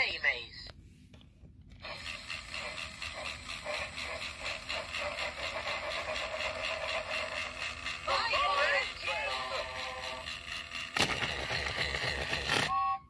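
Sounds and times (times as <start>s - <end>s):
toy motor whirring and clicking: 1.7s - 13.0s.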